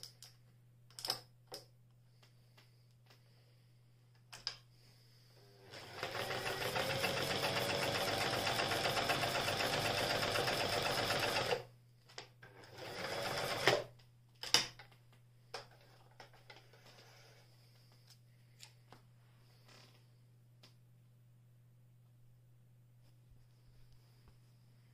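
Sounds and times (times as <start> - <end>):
sewing machine stitching: 5.6 - 11.7, 12.4 - 13.9.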